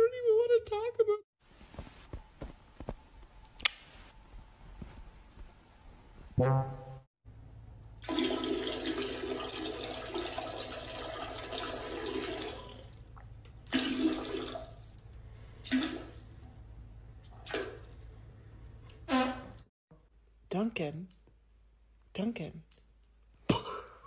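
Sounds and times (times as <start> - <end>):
toilet flushing: 8.0 - 15.0, 15.6 - 16.4.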